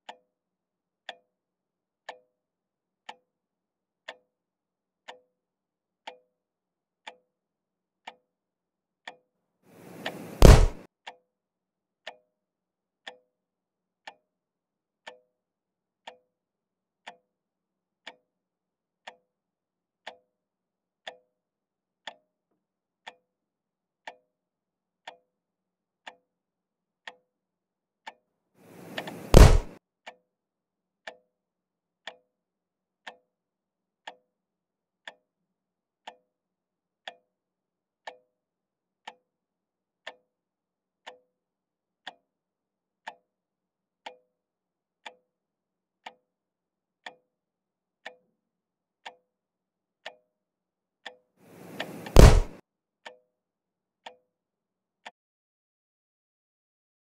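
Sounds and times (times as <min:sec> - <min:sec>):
loud sharp thump: 0:09.9 - 0:10.8, 0:28.8 - 0:29.8, 0:51.6 - 0:52.6.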